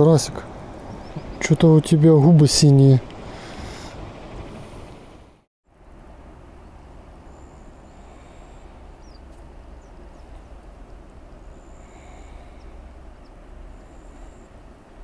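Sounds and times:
thin high bird calls: 6.6 - 14.6.

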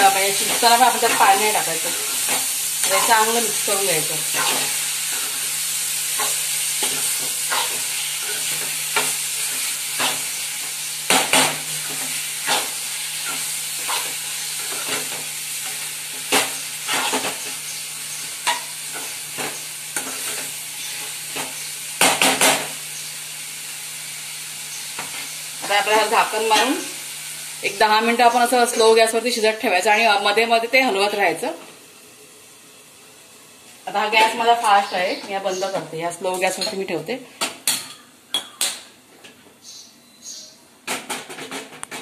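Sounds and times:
meat sizzling in oil: 0.0 - 36.8
spatula scraping a metal pan: 11.2 - 17.5.

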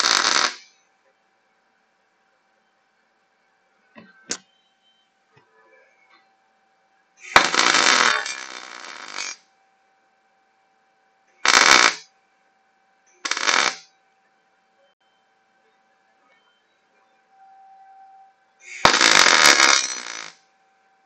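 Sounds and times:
arc welding crackling sizzle: 0.0 - 0.8, 7.2 - 9.4, 11.4 - 12.1, 13.2 - 13.9, 18.6 - 20.4.

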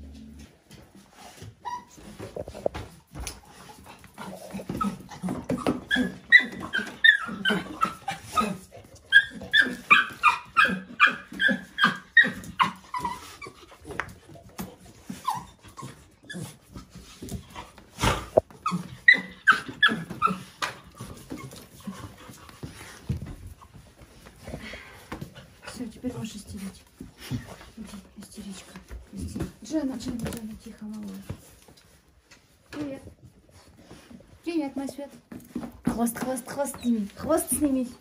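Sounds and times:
puppy whining and yelping: 1.4 - 2.5, 4.2 - 13.9, 15.0 - 16.8, 18.0 - 22.6.

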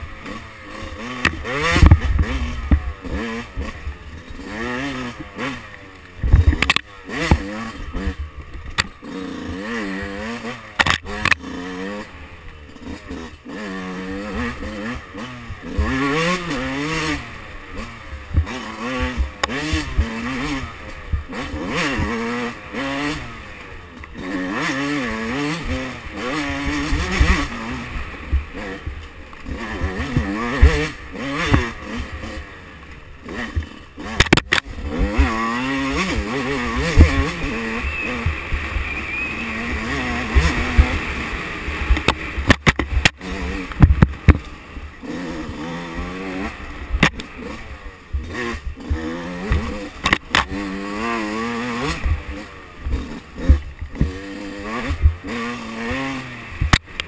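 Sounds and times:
two-stroke dirt bike engine revving: 0.0 - 57.0
sharp knocks over rough ground: 0.3 - 9.1, 10.7 - 11.5, 28.3 - 32.4, 33.2 - 38.9, 41.7 - 44.6, 45.4 - 50.7, 51.4 - 55.4, 56.6 - 57.0.

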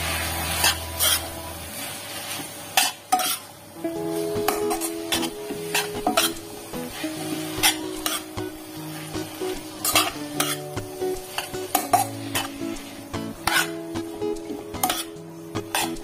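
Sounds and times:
metal spatula scraping wok: 0.0 - 1.4, 2.2 - 3.5, 4.5 - 8.3, 9.8 - 12.8, 13.4 - 13.9, 14.8 - 16.0
frying sizzle: 0.0 - 16.0.

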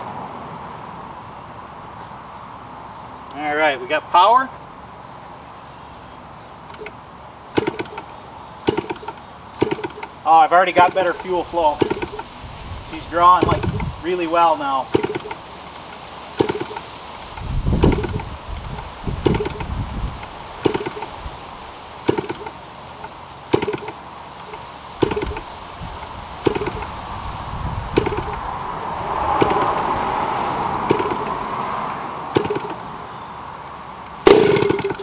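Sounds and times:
propeller flip click and rush: 6.7 - 12.3, 12.9 - 14.1, 14.9 - 21.3, 22.0 - 27.0, 27.9 - 28.5, 29.3 - 30.0, 30.8 - 31.4, 32.3 - 32.8, 34.3 - 35.0.

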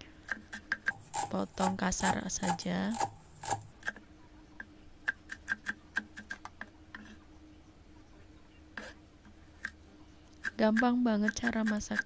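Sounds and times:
cleaver chopping on wooden board: 0.7 - 3.7.

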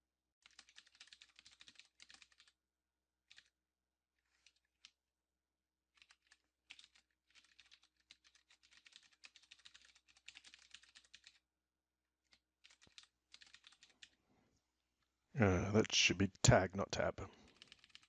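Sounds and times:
typing on computer keyboard: 0.4 - 2.6, 3.2 - 3.6, 4.2 - 5.0, 5.9 - 11.4, 12.2 - 14.2, 17.3 - 18.0.

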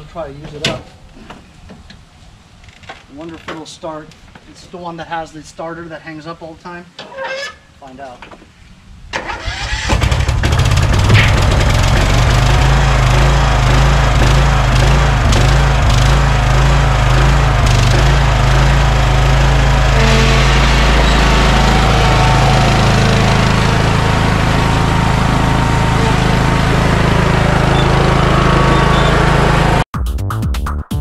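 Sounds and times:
lawn tractor engine running: 9.2 - 29.8
electronic music with a beat: 30.0 - 31.0.

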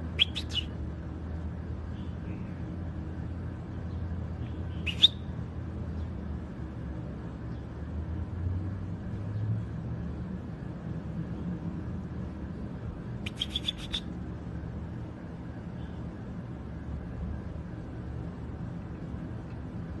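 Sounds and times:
low background hum: 0.0 - 20.0
goldfinch call: 0.2 - 0.7, 4.8 - 5.2, 13.3 - 14.0.

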